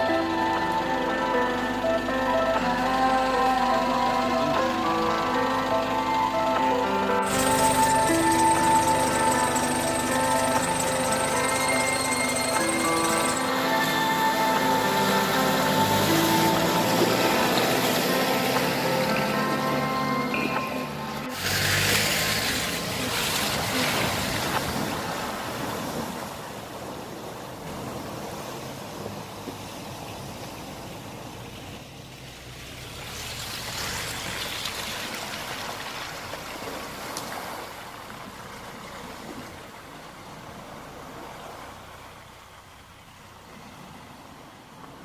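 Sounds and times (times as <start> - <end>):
engine running low: 0.0 - 45.0
water splashing: 7.2 - 43.2.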